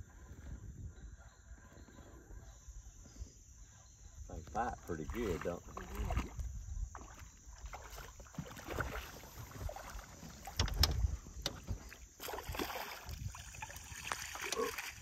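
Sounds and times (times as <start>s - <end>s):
water lapping at hull: 0.0s - 15.0s
fish thrashing and splashing: 7.0s - 15.0s.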